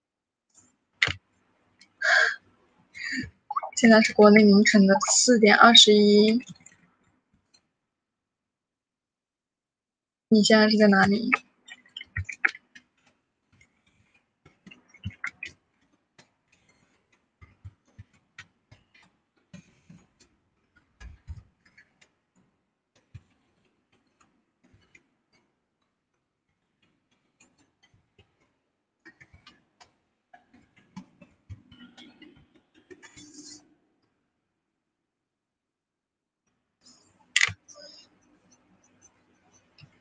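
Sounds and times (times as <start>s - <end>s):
faint clicking and tapping: 10.4s - 34.2s, 36.4s - 40.0s.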